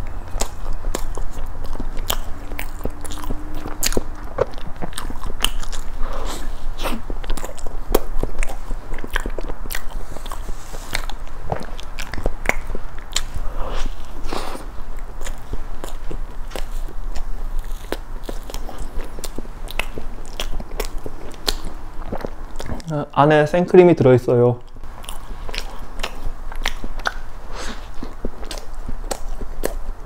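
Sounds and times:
biting and chewing sponge cake: 0.0 - 23.0, 24.6 - 30.0
sharp mouth clicks: 24.6 - 29.9.

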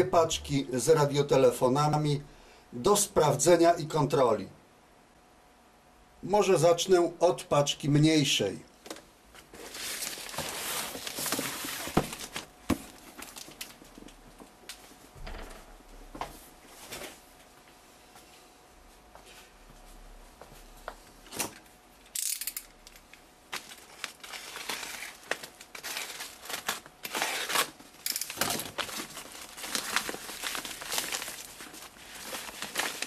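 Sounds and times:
plastic wrap crinkling: 9.4 - 14.5, 22.9 - 33.0.

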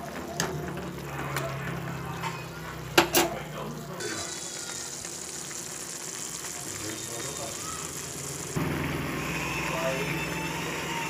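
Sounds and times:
noodles simmering bubbling hiss: 0.0 - 8.6.

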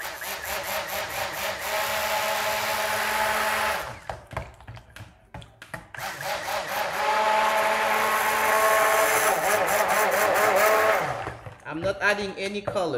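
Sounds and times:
stick blender motor whir: 0.0 - 4.1, 6.0 - 11.5.

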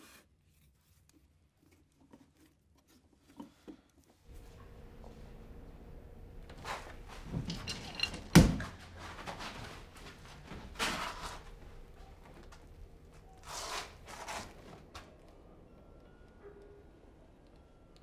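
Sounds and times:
rustling or scraping: 6.5 - 15.2.

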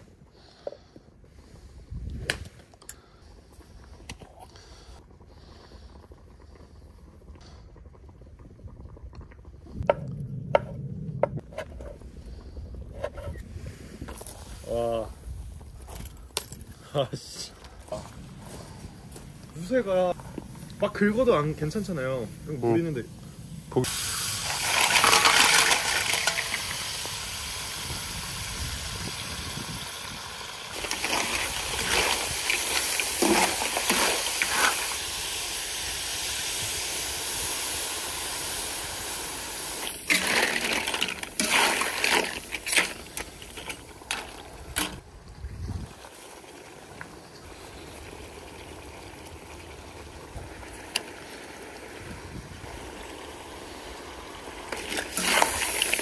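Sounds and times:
hissing bursts of steam: 20.5 - 44.7, 53.6 - 56.0
shellfish sizzling in oil: 20.7 - 45.0, 46.0 - 56.0.

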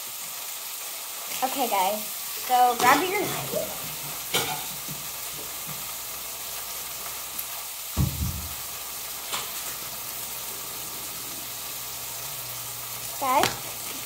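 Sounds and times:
steady hiss: 0.0 - 14.0
dull low thump: 8.0 - 8.6.

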